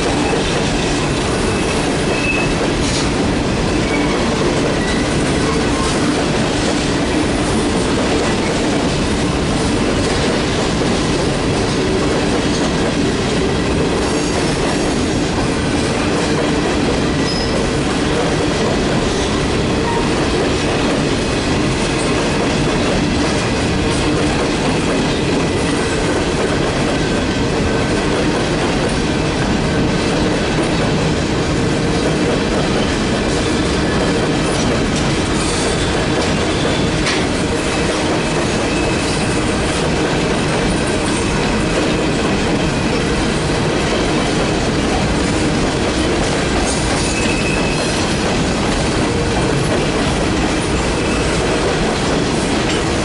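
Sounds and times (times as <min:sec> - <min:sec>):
train wheels clattering over rails: 0:00.0 - 0:53.0
train wheel squeal: 0:00.1 - 0:03.0, 0:03.8 - 0:06.2, 0:17.2 - 0:17.8, 0:19.0 - 0:20.2, 0:33.4 - 0:39.6, 0:46.7 - 0:48.2, 0:50.5 - 0:51.5.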